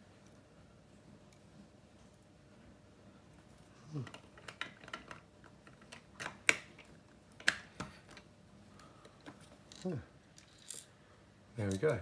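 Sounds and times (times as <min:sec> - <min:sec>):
plastic bricks clicking: 0:04.0 - 0:07.9
sharp plastic snaps: 0:04.0 - 0:08.3.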